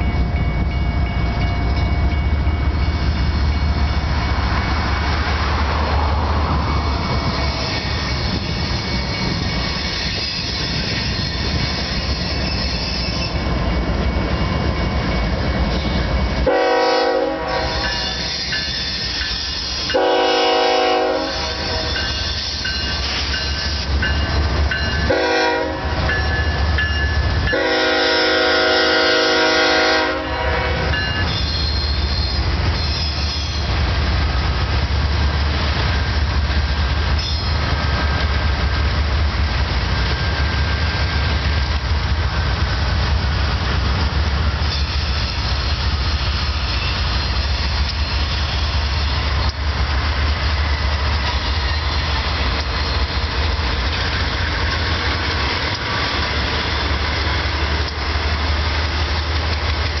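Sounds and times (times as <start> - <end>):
diesel locomotive rumble: 0.0 - 60.0
steel wheels on rail: 0.0 - 60.0
thin wheel squeal: 7.4 - 13.4, 31.3 - 33.7, 52.7 - 53.2.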